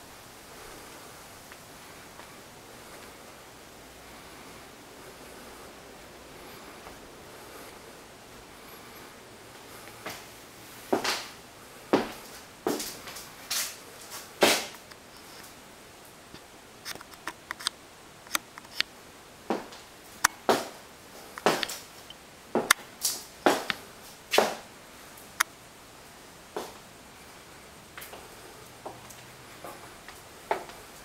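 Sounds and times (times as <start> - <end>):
footsteps on hard floor: 11.9 - 13.3, 20.4 - 20.8, 21.4 - 21.8, 23.5 - 24.6, 28.0 - 30.8.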